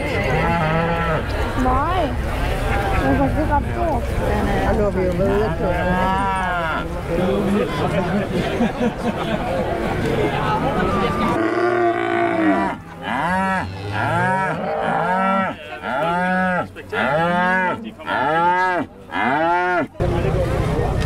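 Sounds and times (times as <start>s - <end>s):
cattle mooing: 5.6s - 6.9s, 11.3s - 19.9s.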